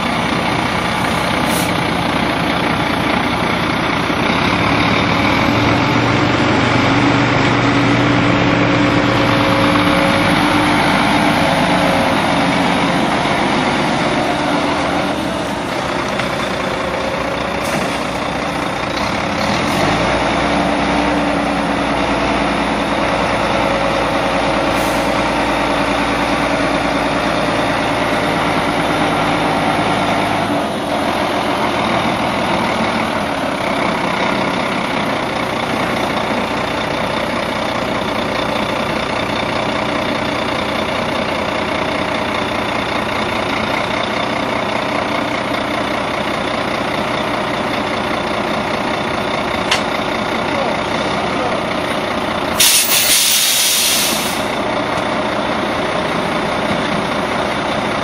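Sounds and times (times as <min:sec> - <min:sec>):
truck diesel engine running: 0:00.0 - 0:58.0.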